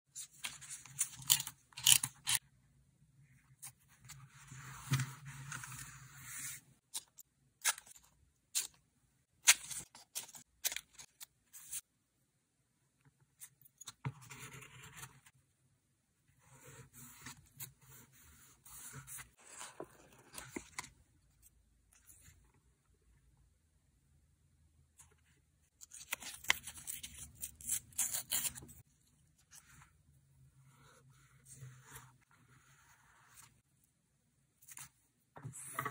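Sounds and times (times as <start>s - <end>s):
scissors snipping paper: 25.8s - 28.8s.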